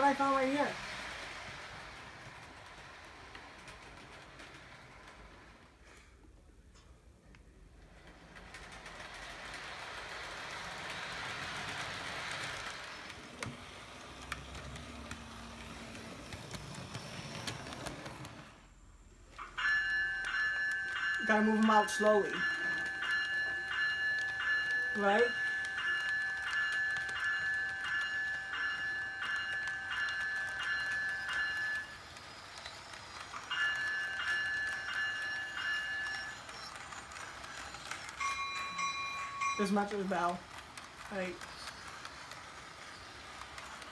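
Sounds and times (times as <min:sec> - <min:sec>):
model train motor hum: 0:07.8 - 0:18.7, 0:20.1 - 0:43.9.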